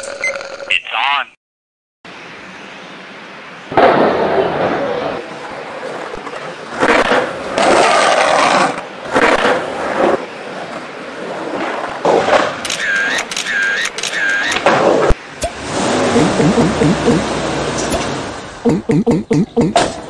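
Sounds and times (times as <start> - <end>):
skateboard wheels rolling on concrete: 3.0 - 12.7, 14.1 - 16.2.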